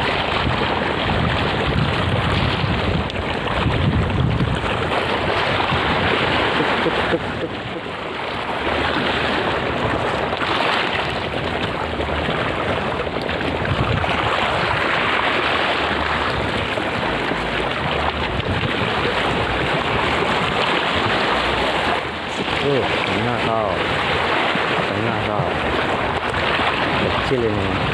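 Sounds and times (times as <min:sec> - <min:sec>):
choppy sea water: 0:00.0 - 0:27.9
wind rushing: 0:01.1 - 0:06.6.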